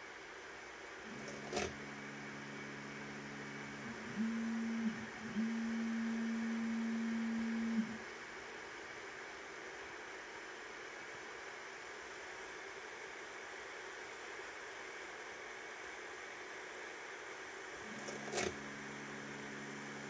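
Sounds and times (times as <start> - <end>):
fan hiss: 0.0 - 20.0
stepper motor humming: 1.0 - 8.0, 17.8 - 20.0.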